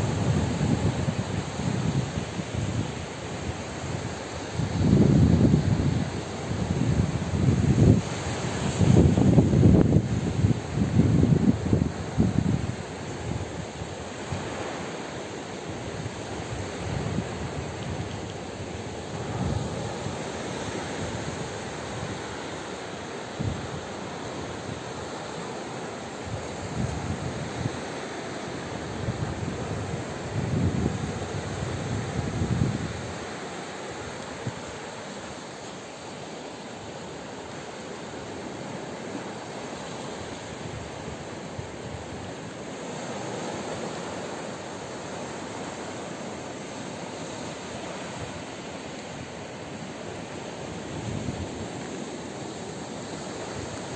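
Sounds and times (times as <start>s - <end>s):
wind buffeting microphone: 0.0s - 13.8s, 28.7s - 33.4s
surf washing onto beach: 0.0s - 53.9s.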